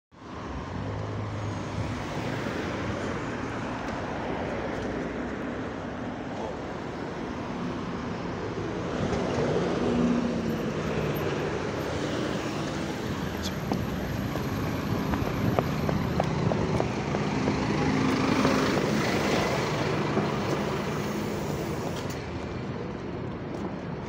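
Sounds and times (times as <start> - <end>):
street traffic: 0.1 - 24.0
bus engine and cooling fan: 4.8 - 24.0.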